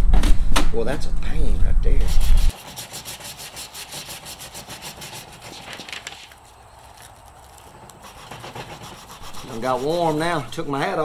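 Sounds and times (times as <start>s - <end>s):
sandpaper scratching wood: 2.0s - 11.0s.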